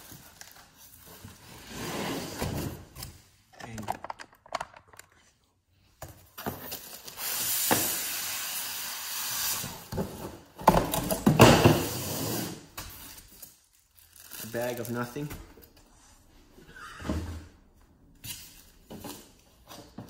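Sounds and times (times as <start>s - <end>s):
foam and cardboard scraping: 1.3s - 2.6s.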